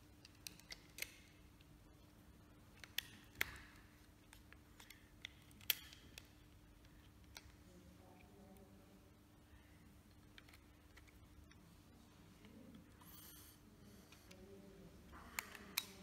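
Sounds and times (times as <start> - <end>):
faint room tone hum: 0.0 - 16.0
small plastic clicks and taps: 2.8 - 7.6, 15.2 - 16.0.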